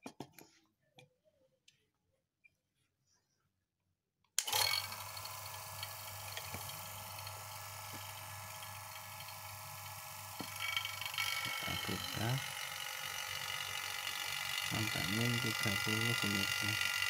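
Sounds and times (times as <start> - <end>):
vacuum pump humming and whirring: 4.4 - 17.0.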